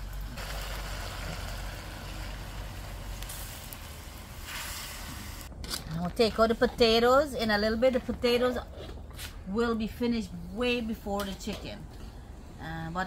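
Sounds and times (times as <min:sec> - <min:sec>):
water hissing in hot pan: 0:00.0 - 0:05.5.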